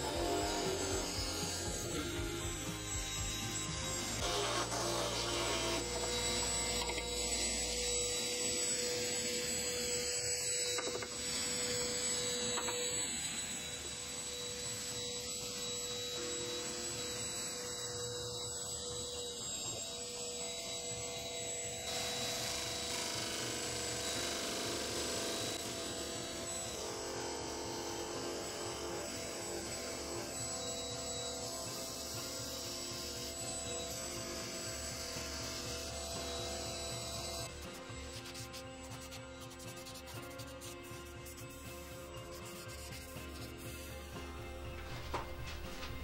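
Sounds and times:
disc sander motor humming: 0:00.0 - 0:40.9
wood against sanding disc: 0:22.6 - 0:46.0.

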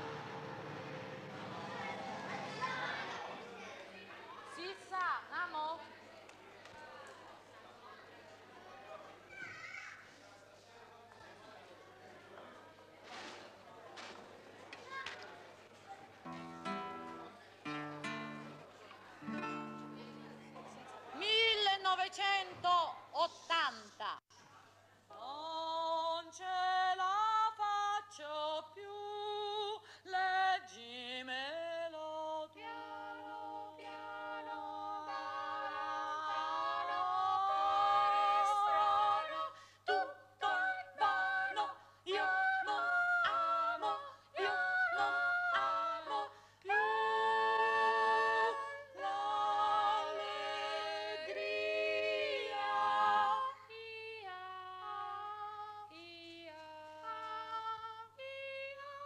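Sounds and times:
women singing a cappella: 0:25.1 - 0:59.0.

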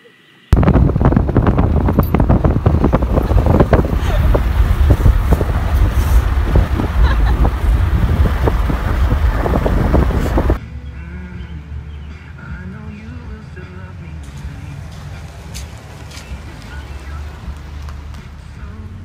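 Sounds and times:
wind buffeting microphone: 0:00.6 - 0:10.6.

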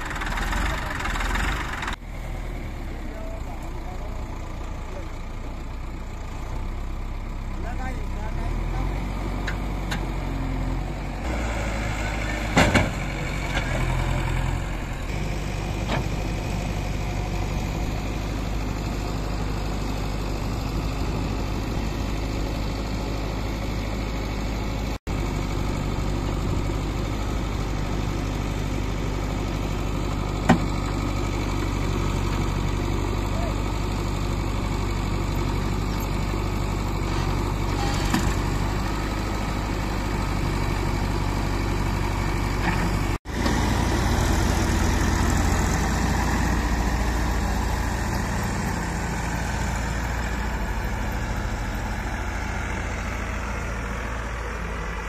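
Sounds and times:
diesel engines running: 0:00.0 - 0:55.0.

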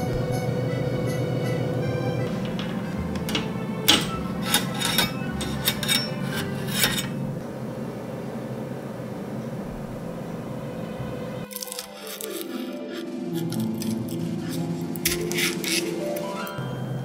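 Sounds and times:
metal spatula clinking on wire rack: 0:02.6 - 0:07.2.

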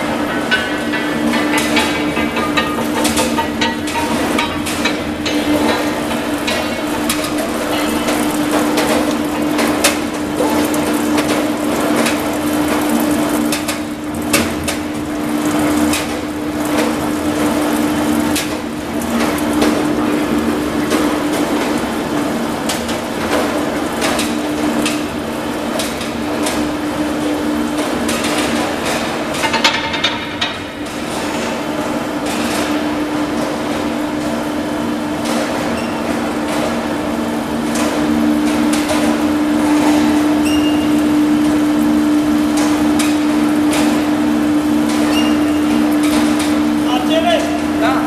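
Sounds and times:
metallic knocks and rattles: 0:00.0 - 0:07.9
machine hum: 0:00.0 - 0:35.2, 0:36.2 - 0:48.0.

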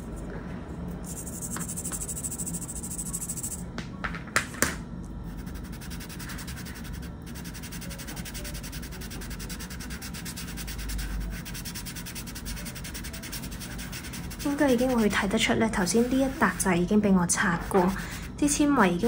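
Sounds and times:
fingertips rubbing on paper: 0:05.3 - 0:18.4.

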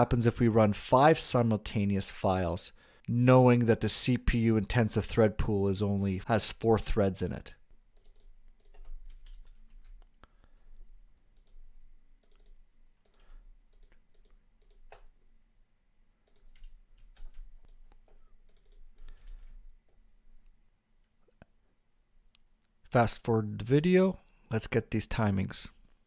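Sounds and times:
computer mouse clicks: 0:07.9 - 0:10.2, 0:11.3 - 0:15.1, 0:16.2 - 0:19.6
keyboard keys clicking: 0:08.0 - 0:10.1, 0:12.2 - 0:15.1.

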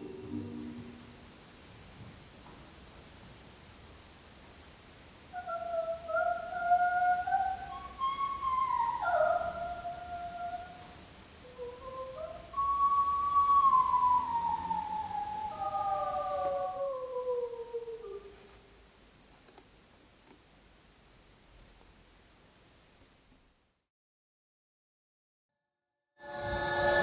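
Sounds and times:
dreamy music of sliding tones: 0:11.5 - 0:18.0, 0:26.2 - 0:27.0.

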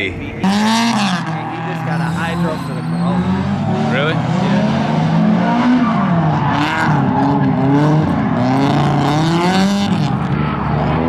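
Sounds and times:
car engine revving: 0:00.0 - 0:11.0
tyres squealing: 0:01.2 - 0:04.4.

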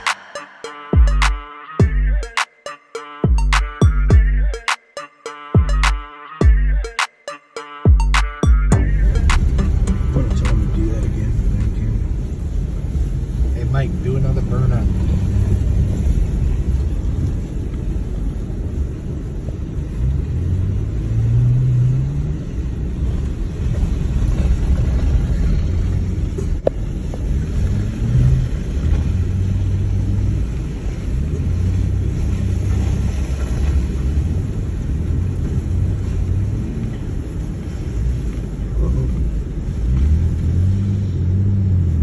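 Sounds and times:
car engine running: 0:07.9 - 0:21.5
tyres rumbling on gravel: 0:22.4 - 0:40.8.

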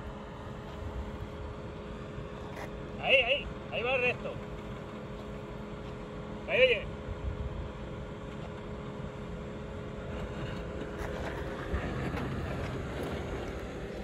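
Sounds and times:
car engine at low revs: 0:00.0 - 0:14.0.

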